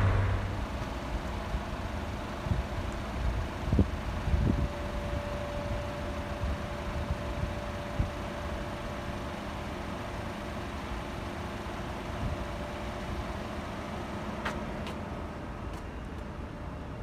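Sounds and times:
engine rumble: 0.0s - 3.7s.

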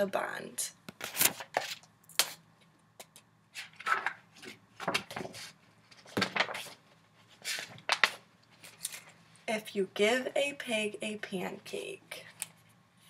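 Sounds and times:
paper pages rustling: 1.0s - 2.4s, 3.5s - 9.2s.

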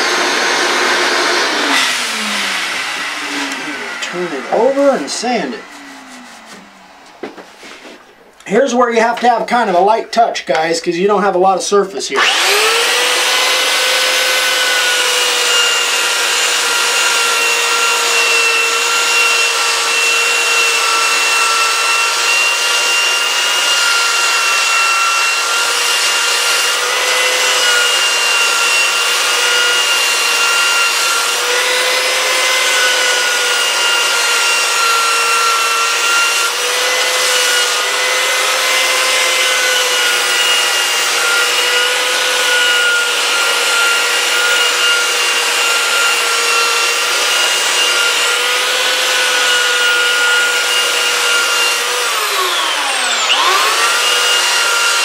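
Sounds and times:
sanding belt rasping on wood: 0.0s - 6.7s
belt sander motor whine: 0.0s - 8.1s, 12.2s - 55.0s.

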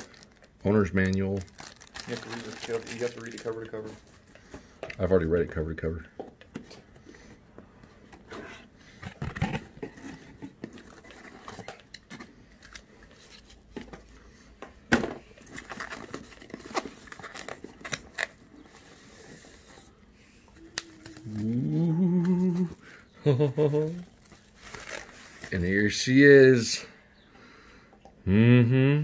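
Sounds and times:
person wordless rising vocal sound: 20.6s - 22.8s, 28.2s - 29.0s.

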